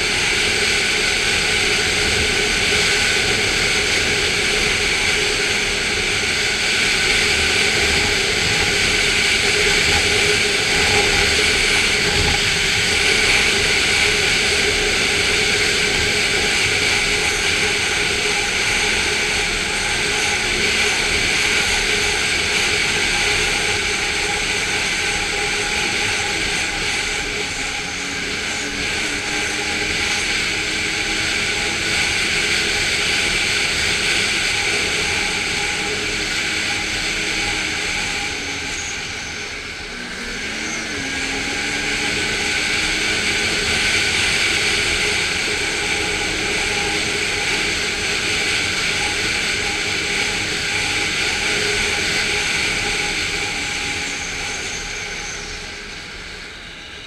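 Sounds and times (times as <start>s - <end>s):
snowmobile engine running: 0.0s - 55.7s.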